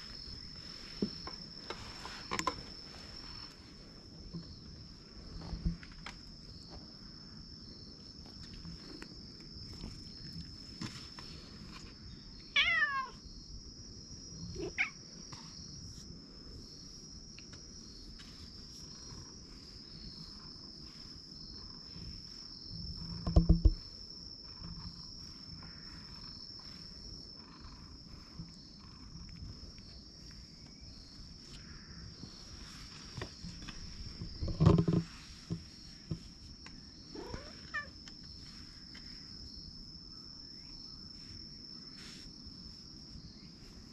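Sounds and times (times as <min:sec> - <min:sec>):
cat calling: 0:12.6 - 0:13.2, 0:14.5 - 0:15.0, 0:37.1 - 0:38.0.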